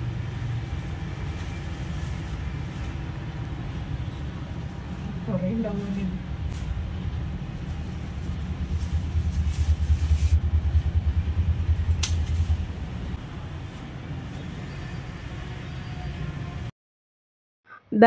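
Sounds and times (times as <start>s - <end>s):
low uneven rumble: 0.0s - 13.7s
pruning shears snipping stem: 11.9s - 12.6s.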